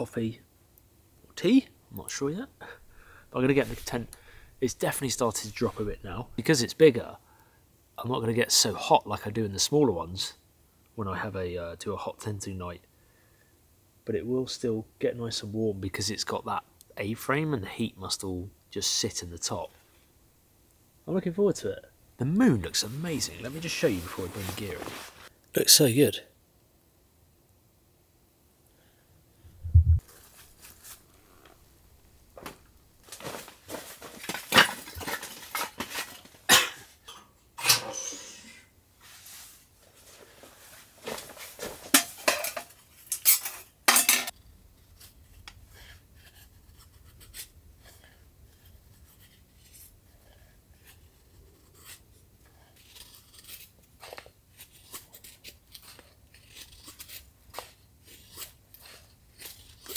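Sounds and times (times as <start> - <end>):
low thump: 29.6 - 30.0
metal cookware clattering: 41.8 - 44.3
knife shaving wood: 44.3 - 59.9.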